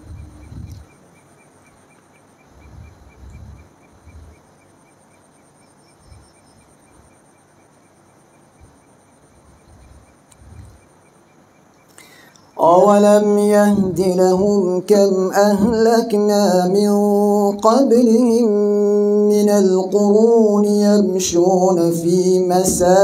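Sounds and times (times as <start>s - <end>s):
soft low thumps: 0.0s - 0.9s, 22.6s - 23.0s
crickets chirping: 0.0s - 23.0s
high insect trill: 0.0s - 23.0s.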